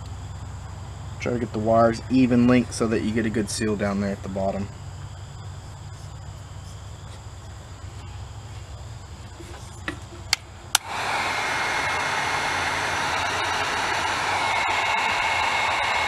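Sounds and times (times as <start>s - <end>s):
low steady hum: 0.0s - 16.0s
heat gun blowing: 10.8s - 16.0s.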